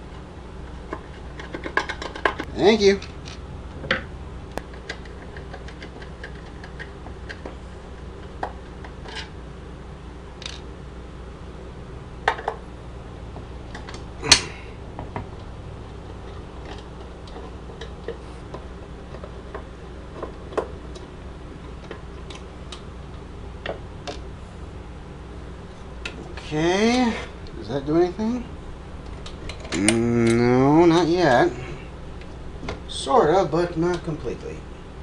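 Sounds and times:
clicks and knocks of handled parts: 0.8s - 9.4s, 10.4s - 10.7s, 13.7s - 22.9s.

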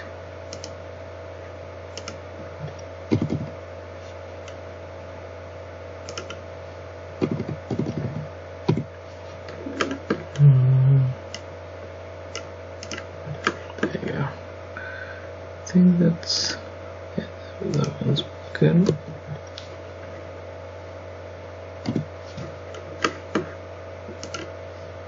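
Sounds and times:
low electrical hum: 0.0s - 25.0s
mouse and keyboard clicks: 6.1s - 6.4s
short low steady tone: 10.4s - 11.2s.

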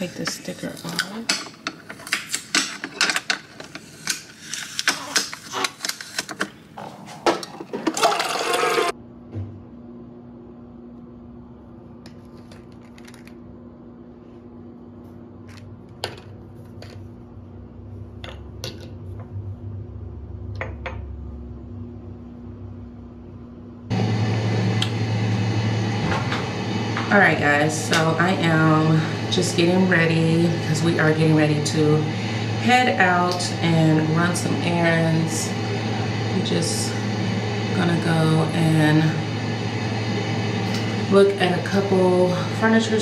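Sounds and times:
steady low hum: 8.9s - 43.0s.

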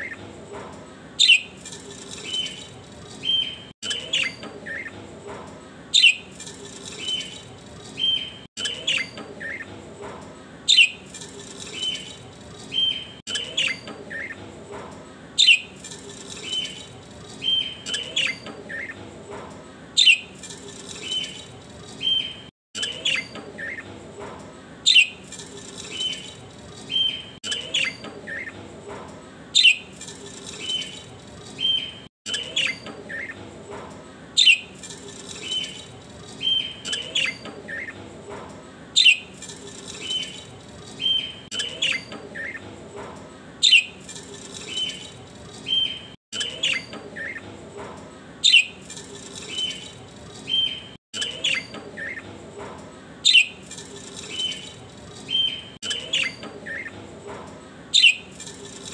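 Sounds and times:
small birds chirping: 1.2s - 5.0s, 5.9s - 9.8s, 10.7s - 14.5s, 15.4s - 19.1s, 20.0s - 24.0s, 24.8s - 28.6s, 29.5s - 33.5s, 34.4s - 38.1s, 39.0s - 42.6s, 43.6s - 47.6s, 48.4s - 52.2s, 53.2s - 57.0s, 57.9s - 58.9s.

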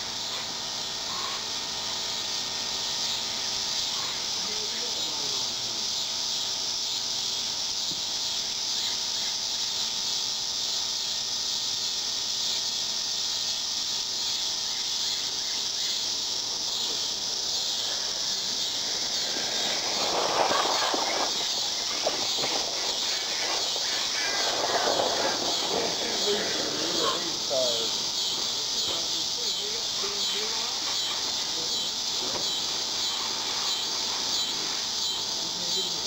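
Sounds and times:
crickets and insects chirping: 0.0s - 36.0s
toy car running past: 15.9s - 36.0s.

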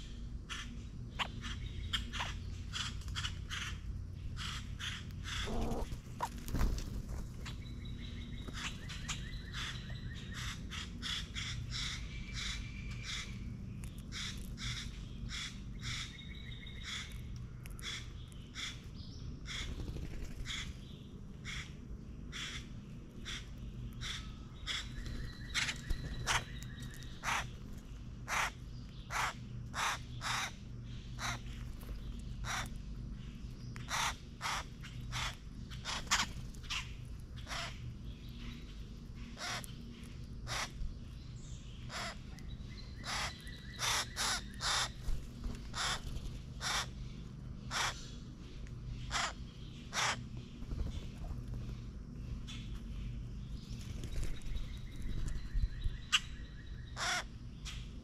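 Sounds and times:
grackles harsh chuck calls: 4.4s - 6.4s, 43.0s - 45.0s.

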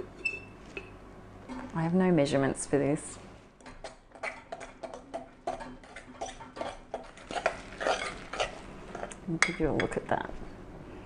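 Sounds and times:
spoon stirring thick batter: 3.8s - 9.9s.

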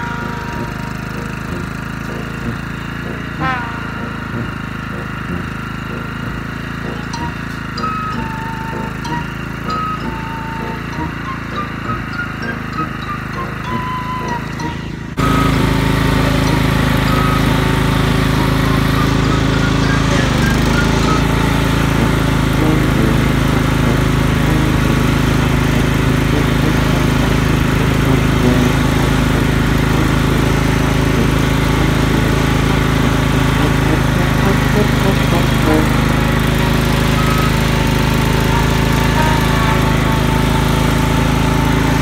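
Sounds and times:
lawn mower engine running: 0.0s - 42.0s.

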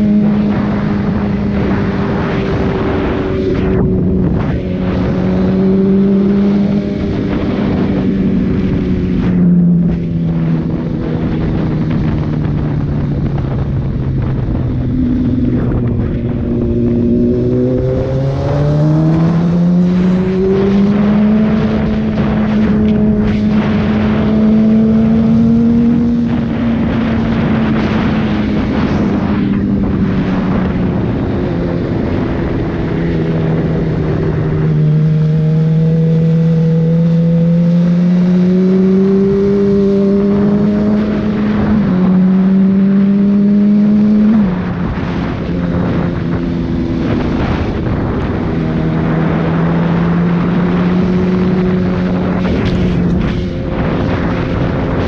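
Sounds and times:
motorcycle engine revving: 0.0s - 55.0s
wind rushing: 0.0s - 55.0s.

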